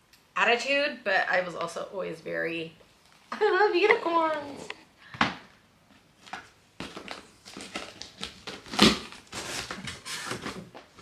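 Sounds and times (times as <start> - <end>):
rustling cardboard and packing: 5.9 - 11.0.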